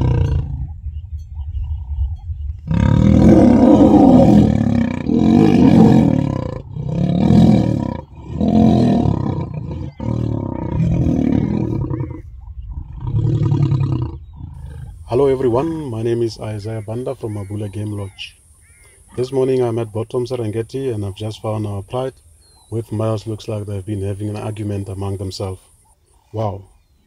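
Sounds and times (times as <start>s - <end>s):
lions snarling and roaring: 0.0s - 0.8s, 2.6s - 15.9s.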